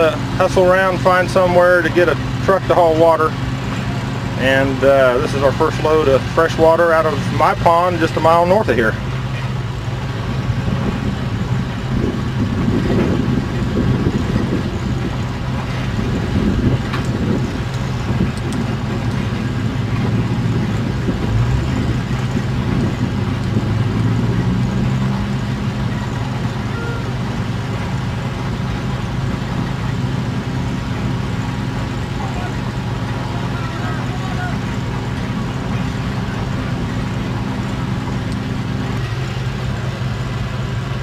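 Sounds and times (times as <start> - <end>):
truck engine running: 0.0 - 41.0
water gushing from hose: 0.0 - 41.0.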